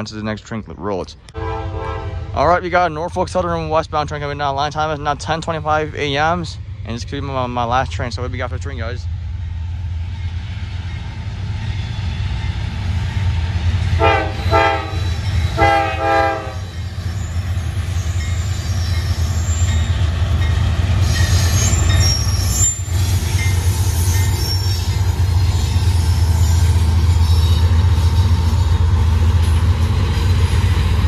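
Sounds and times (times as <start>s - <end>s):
diesel locomotive rumbling past: 1.3s - 31.0s
train horn blasts: 1.4s - 2.4s, 14.0s - 16.8s
high-pitched wheel squeal: 16.6s - 20.1s, 21.0s - 28.6s.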